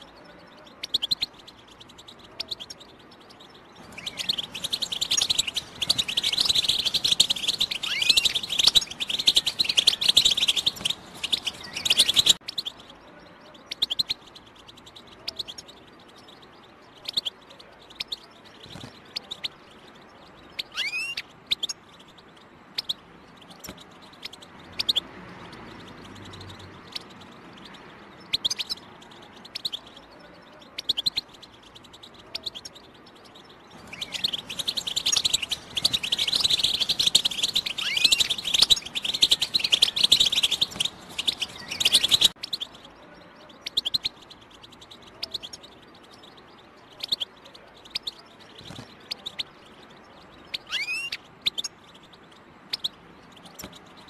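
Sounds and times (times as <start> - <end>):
short bird chirps: 0.0 - 12.9, 29.5 - 49.6, 50.2 - 51.8
goldfinch twittering song: 0.0 - 54.0
rising falling whistled call: 4.0 - 12.4, 33.9 - 42.4.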